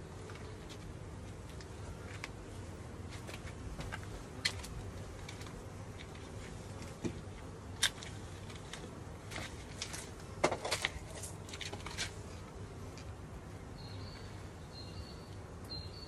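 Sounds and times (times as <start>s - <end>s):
beehive equipment clicks and knocks: 3.1s - 13.2s.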